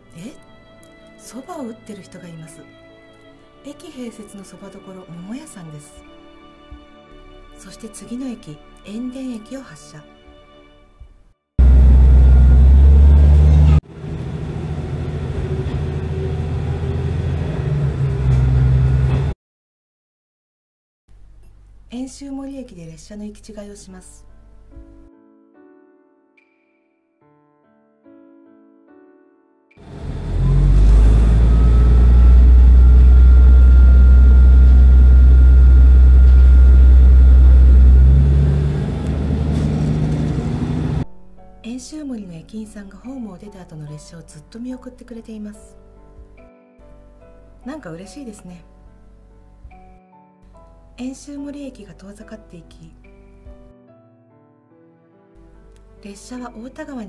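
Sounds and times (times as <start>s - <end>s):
diesel engine drone: 11.6s - 19.3s, 29.8s - 41.0s
train wheel rumble: 11.6s - 19.3s, 29.8s - 41.0s.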